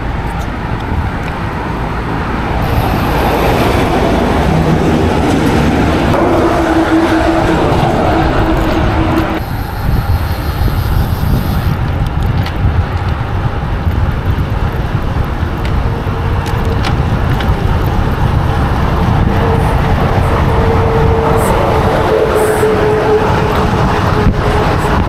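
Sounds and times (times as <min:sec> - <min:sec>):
road traffic: 0:00.0 - 0:25.0
wind buffeting microphone: 0:00.0 - 0:25.0
steady hum: 0:02.2 - 0:11.8.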